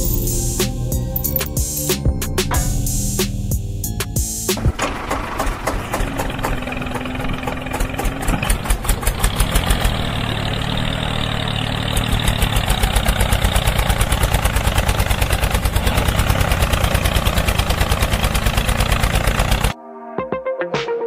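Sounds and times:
tractor engine chugging: 0.0 - 1.4, 4.6 - 19.8.

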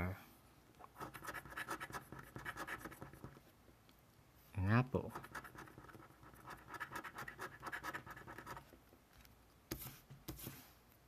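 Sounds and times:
coin scratching lottery ticket: 1.0 - 3.4, 5.1 - 8.6.

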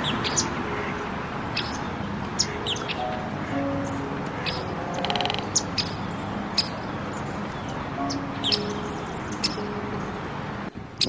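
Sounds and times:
soft background music: 0.0 - 11.0
high bird chirps: 1.6 - 10.2.

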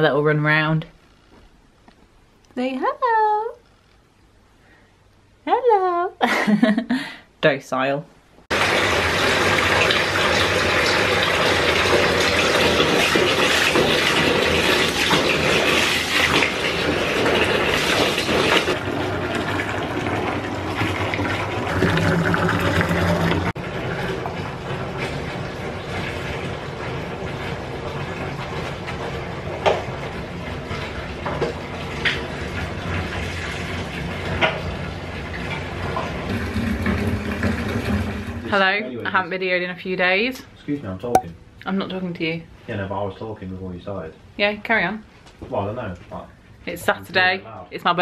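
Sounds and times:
tap water filling bathtub: 8.5 - 38.5.

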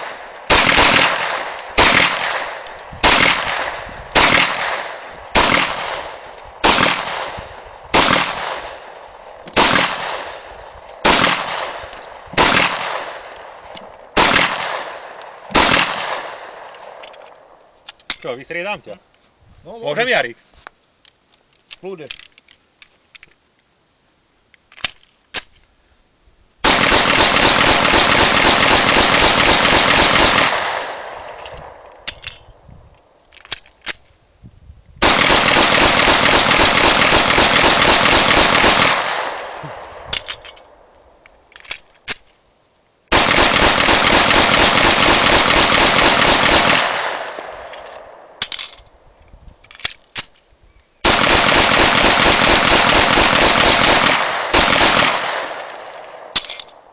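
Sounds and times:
metallic handling clicks: 16.6 - 18.3, 21.0 - 23.7, 24.5 - 25.7, 31.2 - 34.2, 39.8 - 43.0, 47.4 - 51.0, 55.3 - 56.9
pistol shots in rapid strings: 26.7 - 31.1, 35.0 - 39.4, 43.1 - 47.4, 51.1 - 55.6.

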